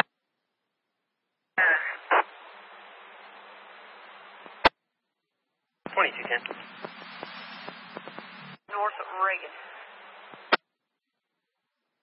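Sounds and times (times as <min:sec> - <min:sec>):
garbled radio burst: 0:01.6 - 0:02.4, 0:05.9 - 0:10.6
radio static hiss: 0:01.6 - 0:04.8, 0:05.9 - 0:10.6.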